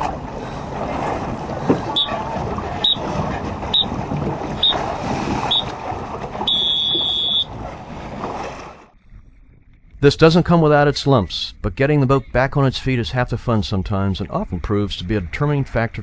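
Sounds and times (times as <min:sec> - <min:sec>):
wind and water: 0:00.0 - 0:16.0
electronic timer beeps: 0:02.0 - 0:02.2, 0:02.8 - 0:03.0, 0:03.7 - 0:03.9, 0:04.6 - 0:04.8, 0:05.5 - 0:05.7, 0:06.5 - 0:07.5.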